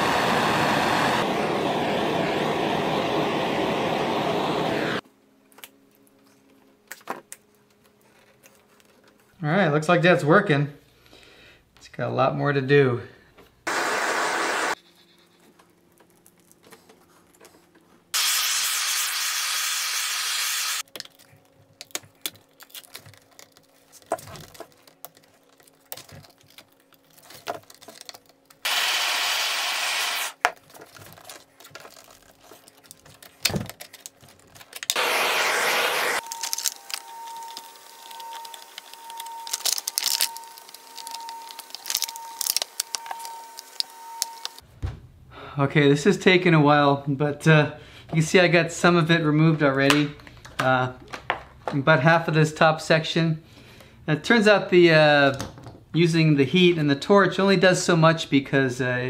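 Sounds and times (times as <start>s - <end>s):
gas torch hissing: 0.0s - 5.0s, 13.7s - 14.8s, 18.2s - 20.8s, 28.6s - 30.4s, 34.9s - 44.6s
plastic peeling and tearing: 20.8s - 28.7s, 30.4s - 35.1s, 36.2s - 44.6s.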